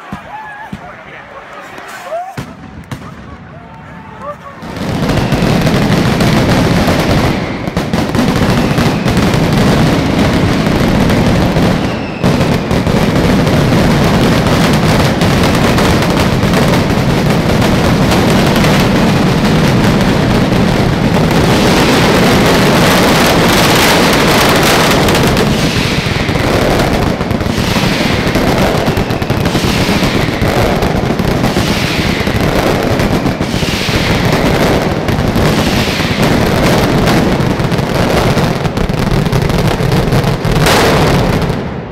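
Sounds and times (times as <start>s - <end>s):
firecrackers exploding rapidly: 1.9s - 41.9s
falling whistles: 11.7s - 12.4s.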